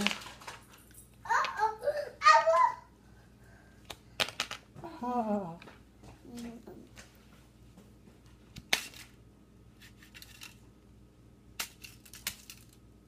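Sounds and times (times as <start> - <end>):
plastic toy pieces clicking: 11.6 - 12.8.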